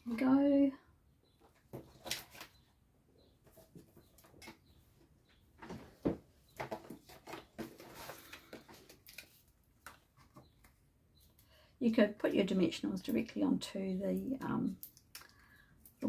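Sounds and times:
paper rustling: 6.6 - 10.4
small clicks and taps: 14.2 - 16.0.

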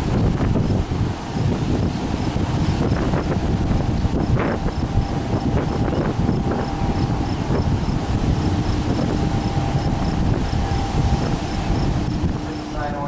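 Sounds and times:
faint hum: 0.0 - 13.0
locomotive rumble: 0.0 - 13.0
wind on microphone: 0.0 - 13.0.

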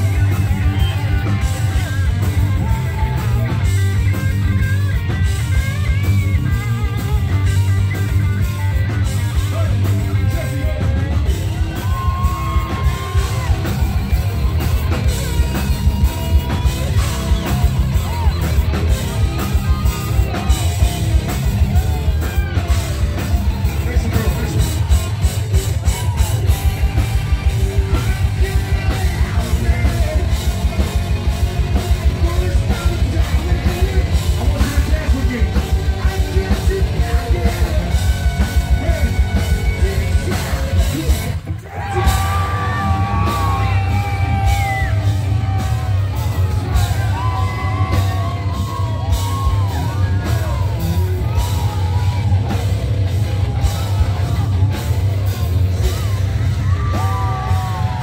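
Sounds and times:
distorted electric guitars: 0.0 - 58.0
drum kit: 0.0 - 58.0
singer yelling and singing: 0.0 - 58.0.

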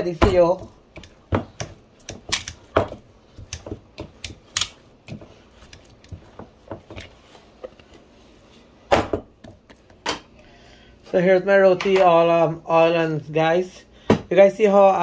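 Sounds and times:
kitchen items clicking and knocking: 0.0 - 7.8.

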